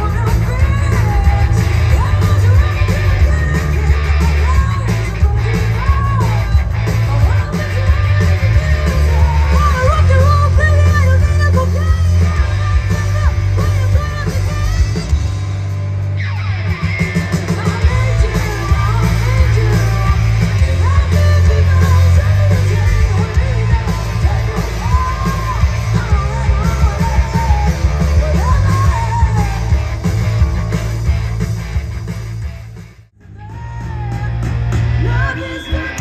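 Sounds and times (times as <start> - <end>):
woman singing: 0.0 - 15.2, 17.5 - 30.0, 35.0 - 36.0
live hard rock band: 0.0 - 36.0.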